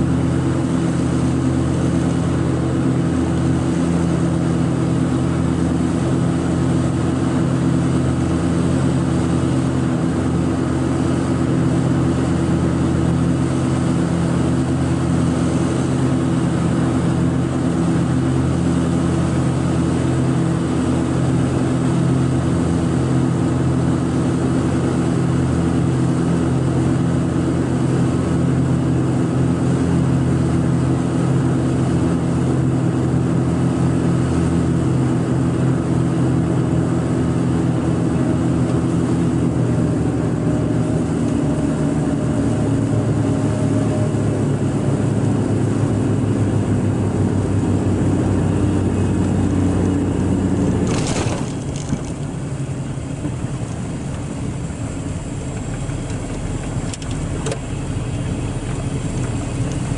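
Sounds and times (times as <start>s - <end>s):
piston engines droning: 37.9s - 59.9s.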